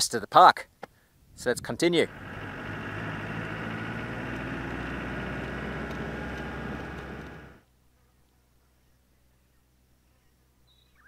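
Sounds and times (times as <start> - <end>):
vehicle engine and tyre noise: 2.0 - 7.6.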